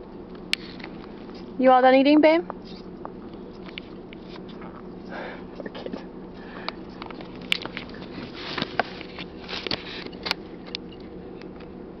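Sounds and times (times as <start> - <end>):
car interior hum: 0.0 - 12.0
small clicks and rustles: 2.5 - 5.1, 6.6 - 11.8.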